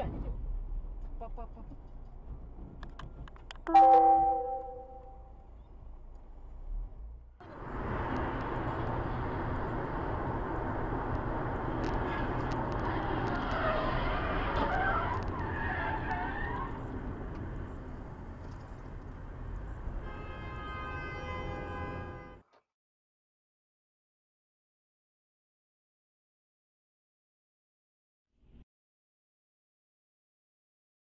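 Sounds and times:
car road and engine noise: 0.0s - 22.4s
high tyre squeal: 12.0s - 16.9s.

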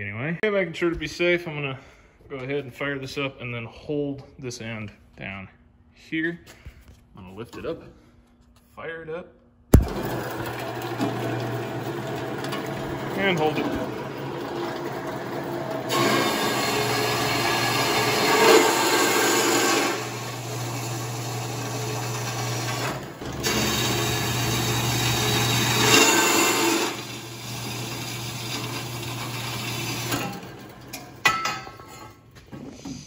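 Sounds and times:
bandsaw motor hum: 9.8s - 31.2s
saw blade cutting steel tubing: 15.9s - 30.5s.

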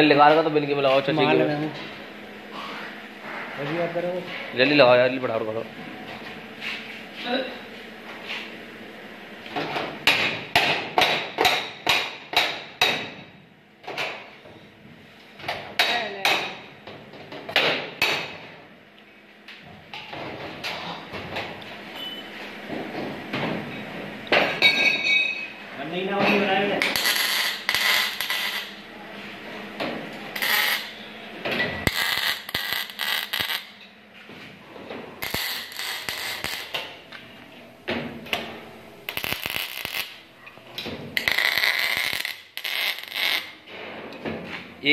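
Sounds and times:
arc welding crackling hiss: 26.8s - 28.9s, 30.4s - 31.1s, 31.8s - 33.7s, 35.2s - 37.0s, 39.1s - 40.2s, 41.2s - 43.6s.

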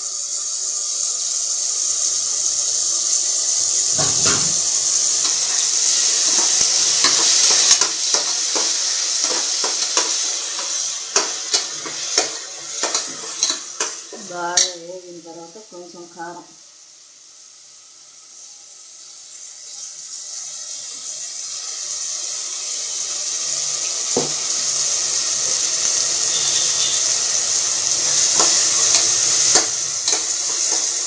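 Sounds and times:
onions frying in oil: 0.0s - 31.0s
steel ladle scraping and knocking pot: 6.2s - 14.7s, 28.4s - 30.9s.

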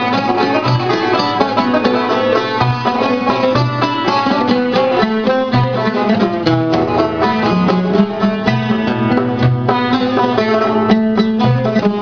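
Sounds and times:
oud melody: 0.0s - 12.0s.

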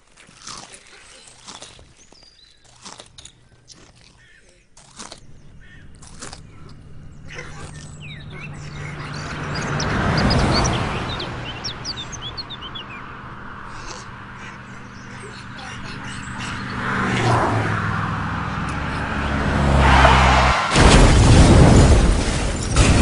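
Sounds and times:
rushing noise: 16.6s - 23.0s.

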